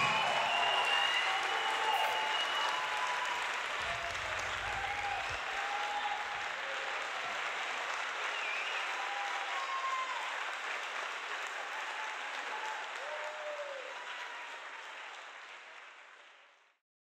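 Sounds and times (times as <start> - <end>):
crowd calling out: 0.0 - 6.5
audience applauding: 0.0 - 16.8.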